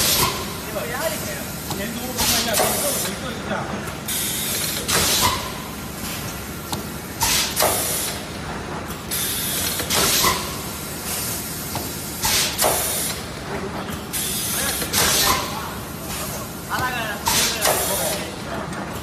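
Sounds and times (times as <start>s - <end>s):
steady mechanical hum: 0.0s - 19.0s
compressed air hisses: 12.2s - 13.2s.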